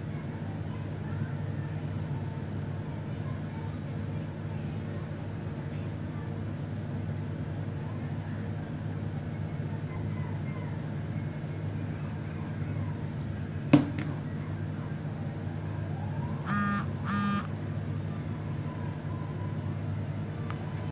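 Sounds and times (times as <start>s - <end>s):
steady low hum: 8.5s - 20.9s
short buzzy beeps: 16.5s - 17.5s.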